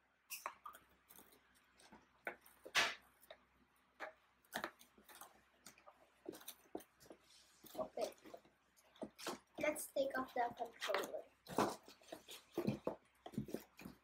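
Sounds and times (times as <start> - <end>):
cardboard and plastic rustling: 4.6 - 14.0.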